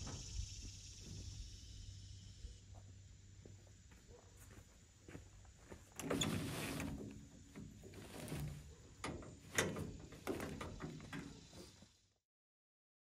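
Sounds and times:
mesh tarp rustling and dragging: 6.0s - 9.0s
crank clicking and knocking: 6.9s - 11.5s.

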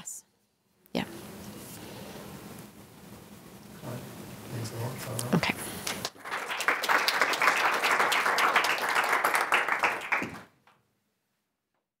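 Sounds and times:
audience applauding: 5.8s - 10.6s.

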